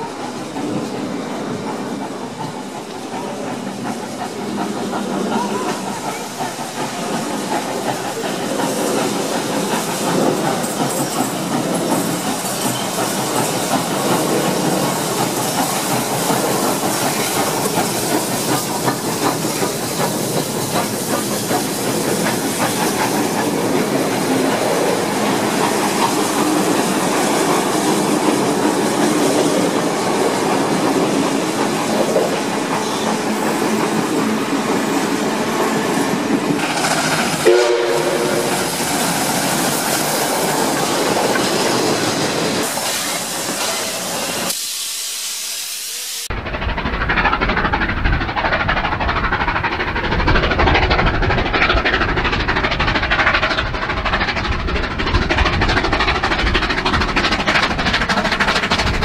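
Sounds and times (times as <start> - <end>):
steam hiss: 0.0 - 59.0
carriage wheels clattering on rails: 1.8 - 35.1.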